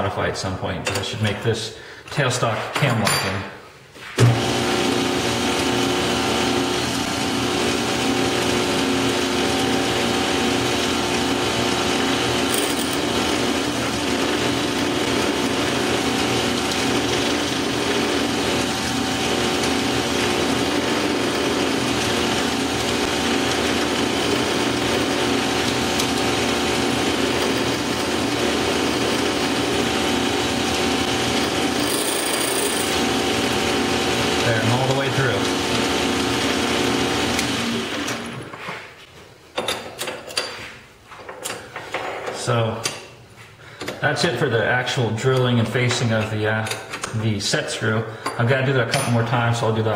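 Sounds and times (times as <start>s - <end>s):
lathe motor whining: 4.2s - 38.5s
drill bit cutting metal: 5.2s - 37.6s.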